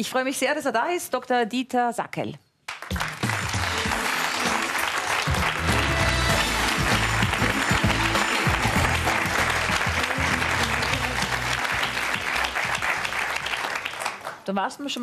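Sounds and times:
audience applauding: 2.7 - 14.5
music with low bass line: 5.3 - 12.1.

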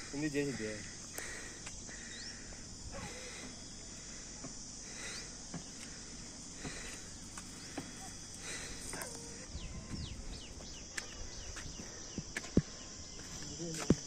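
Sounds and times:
lower pulsing buzz: 0.0 - 13.4
high-pitched insect chorus: 0.0 - 14.0.

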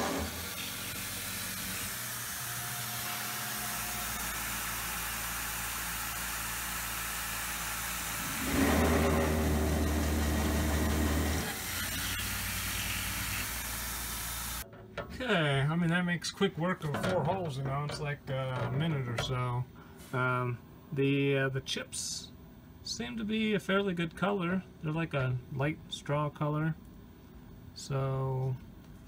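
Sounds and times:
mill drilling steel: 0.0 - 14.6.

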